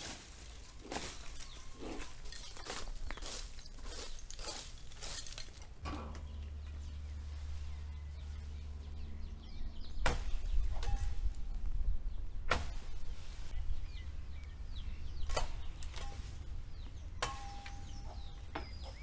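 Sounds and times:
branches snapping: 0.0 - 6.3, 10.0 - 11.7, 12.5 - 13.0, 15.2 - 19.0
birds chirping: 0.0 - 19.0.

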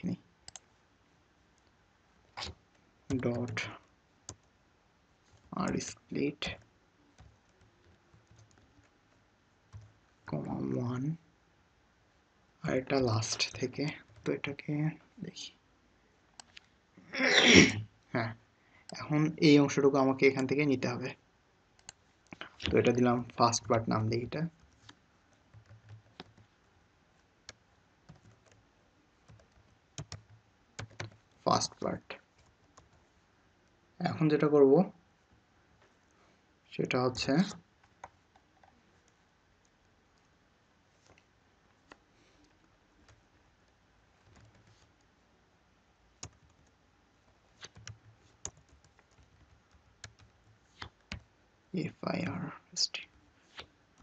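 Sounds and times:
faint low hum: 0.0 - 54.0
computer keys clicking: 0.4 - 0.7, 5.3 - 10.0, 16.4 - 16.7, 21.8 - 23.7, 24.5 - 26.5, 27.2 - 28.6, 29.2 - 31.4, 37.8 - 38.8, 41.0 - 45.1, 46.2 - 46.8, 47.6 - 51.3
faint keyboard keystrokes: 6.5 - 10.0, 24.5 - 26.5, 46.2 - 46.8, 47.6 - 51.3.

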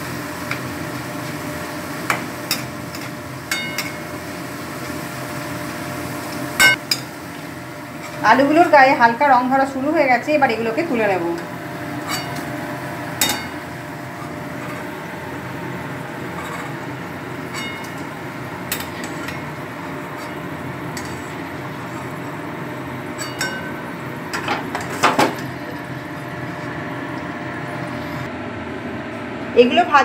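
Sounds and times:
oil sizzling in a wok: 0.0 - 28.3
metal spoon clinking on a wok: 23.2 - 24.4.

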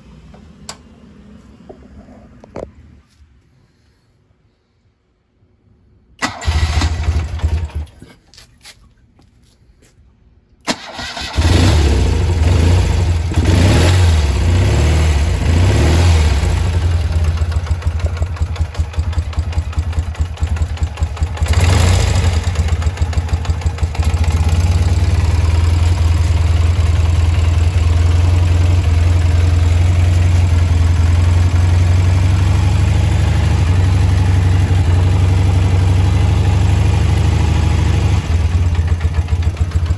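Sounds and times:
motorcycle engine starting and idling: 6.2 - 8.2, 10.6 - 39.9.

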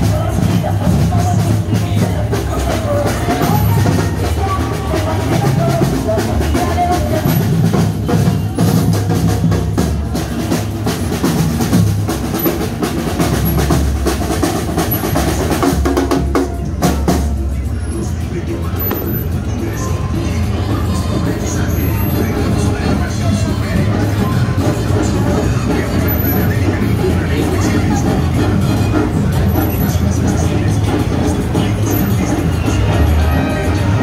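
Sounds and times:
snare drums beating: 0.0 - 17.5
bass drum beating: 0.0 - 34.0
parade band music: 0.0 - 34.0.

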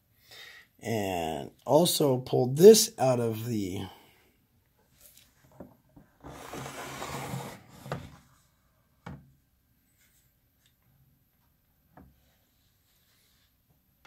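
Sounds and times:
rubbing sliding handling noise: 6.2 - 8.4.

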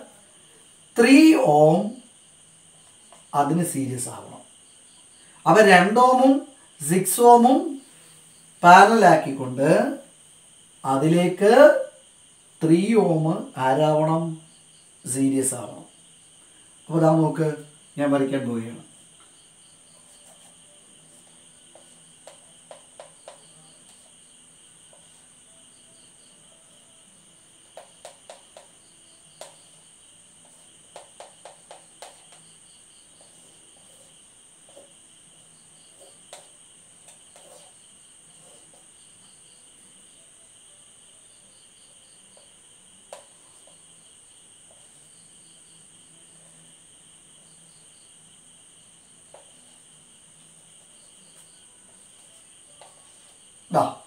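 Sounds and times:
marker tapping on whiteboard: 21.1 - 24.1, 24.9 - 25.2, 27.6 - 35.0, 35.9 - 37.8, 42.4 - 43.8, 49.3 - 49.8, 52.1 - 53.4.

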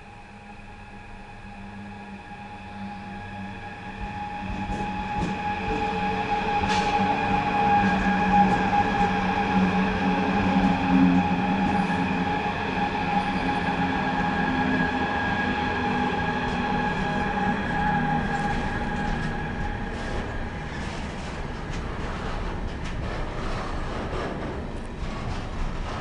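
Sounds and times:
electric locomotive whine: 0.0 - 26.0
train wheels rumbling and clicking: 2.6 - 26.0.

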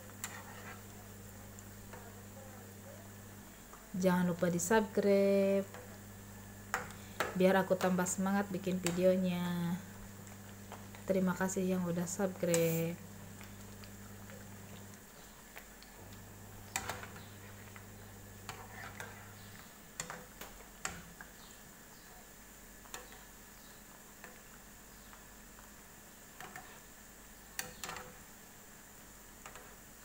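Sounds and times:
oil sizzling: 0.0 - 30.0
metal spatula scraping frying pan: 0.2 - 0.8.

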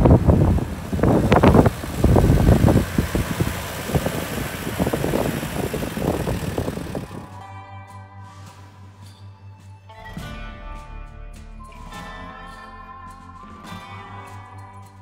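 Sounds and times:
tyres crunching over gravel: 0.0 - 7.3
vehicle engine running: 0.0 - 7.5.

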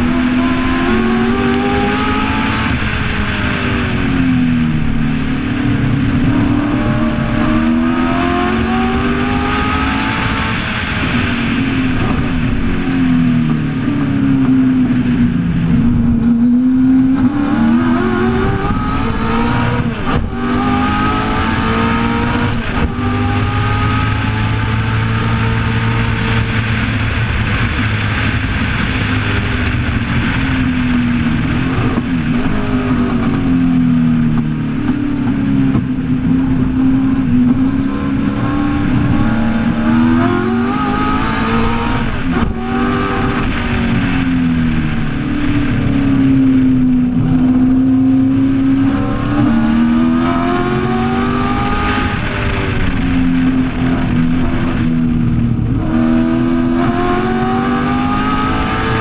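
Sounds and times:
car engine accelerating: 0.0 - 59.0
wind and road noise: 0.0 - 59.0.

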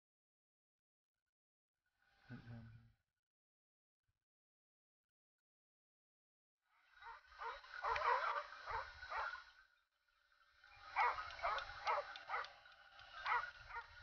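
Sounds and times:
dog barking and yelping: 7.0 - 9.4, 10.9 - 12.6, 13.2 - 14.0.

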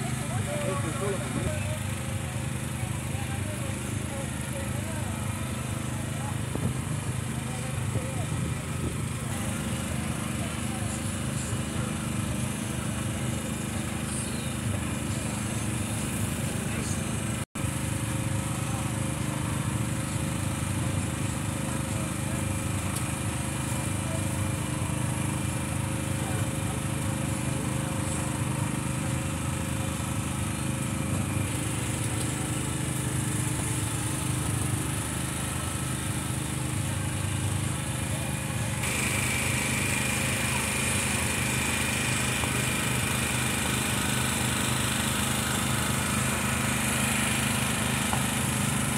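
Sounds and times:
small motor humming: 0.0 - 48.9
hiss: 38.8 - 45.7.

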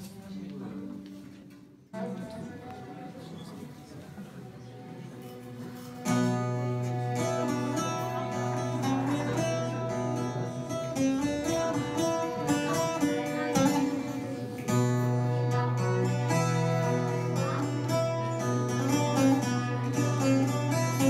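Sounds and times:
plucked long-necked lute: 4.7 - 21.0
violin bowed: 5.0 - 21.0.

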